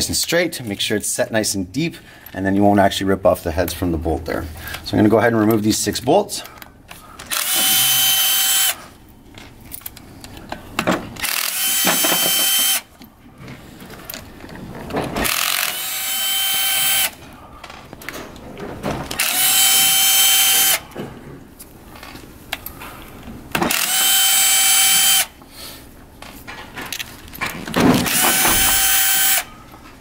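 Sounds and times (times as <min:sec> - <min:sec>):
electric screwdriver motor whine: 0:07.3 - 0:08.8, 0:11.2 - 0:12.9, 0:15.2 - 0:17.2, 0:19.2 - 0:20.8, 0:23.7 - 0:25.4, 0:28.0 - 0:29.5.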